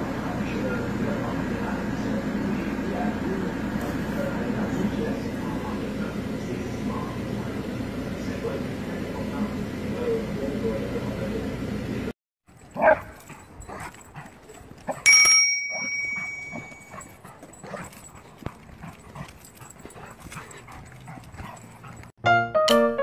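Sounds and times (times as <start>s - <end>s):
ringing tone: 15.1s - 16.9s
dog whining and yelping: 15.7s - 18.4s
piano music: 22.2s - 23.0s.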